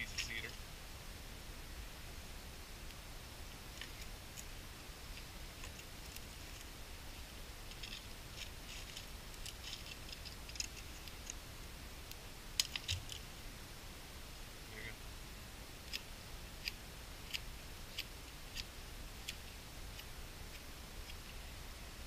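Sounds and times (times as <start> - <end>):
knife scraping wood: 7.7 - 11.3.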